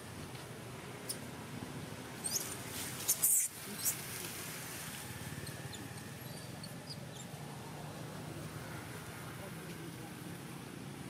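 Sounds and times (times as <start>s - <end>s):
baby monkey squeaking: 2.2s - 4.0s.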